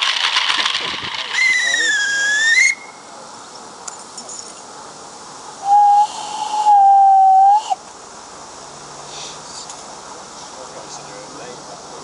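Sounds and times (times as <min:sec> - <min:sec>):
breathy steam hiss: 0:04.6 - 0:12.0
steam locomotive whistle: 0:05.6 - 0:07.8.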